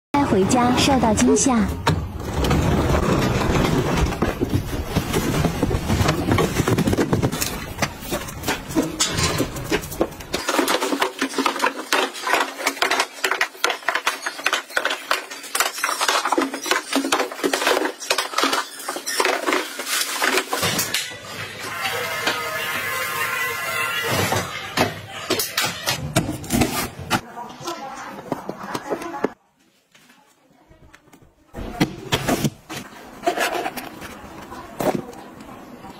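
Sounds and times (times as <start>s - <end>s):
cardboard boxes dragged on tiles: 2.2s - 15.4s.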